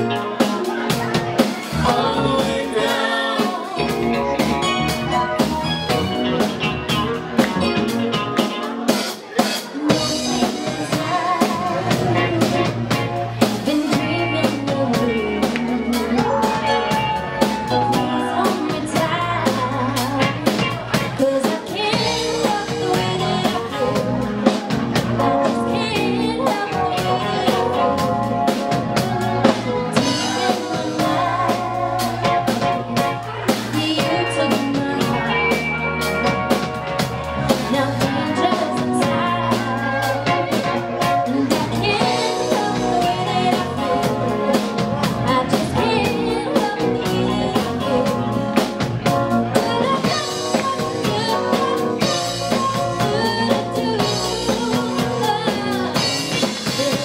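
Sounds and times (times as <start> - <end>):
woman singing into microphone: 0.0 - 4.4, 9.7 - 35.8, 37.5 - 57.0
drum kit: 0.0 - 57.0
live band playing: 0.0 - 57.0.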